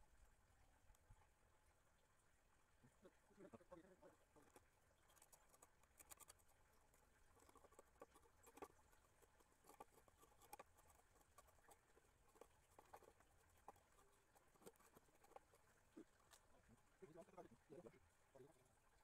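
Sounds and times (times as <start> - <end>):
faint small clicks and taps: 4.3 - 16.7.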